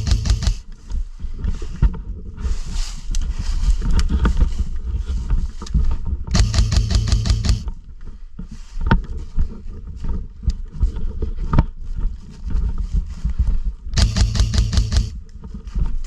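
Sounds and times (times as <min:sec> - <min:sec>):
airsoft rifle full-auto bursts: 0:00.0 - 0:00.6, 0:06.4 - 0:07.7, 0:14.0 - 0:15.2
gearbox motor hum: 0:00.0 - 0:00.6, 0:06.3 - 0:07.7, 0:14.0 - 0:15.2
rustling and handling noise: 0:00.0 - 0:16.0.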